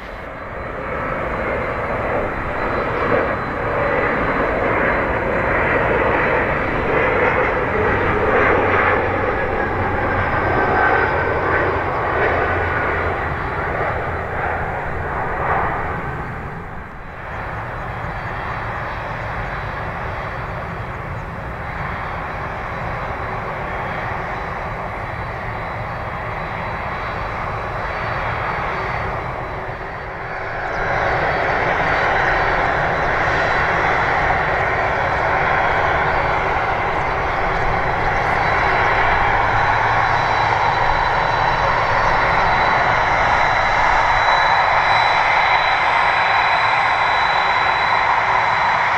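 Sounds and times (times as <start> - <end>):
jet engine roar: 0.0 - 48.9.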